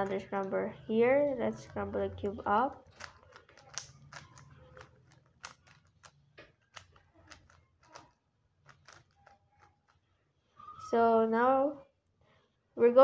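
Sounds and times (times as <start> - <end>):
plastic puzzle cube clicking: 2.5 - 10.0.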